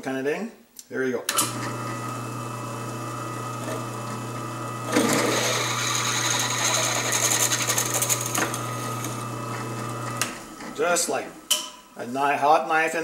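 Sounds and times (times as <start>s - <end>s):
drill press motor humming: 1.4s - 11.5s
drill bit cutting steel: 1.5s - 10.8s.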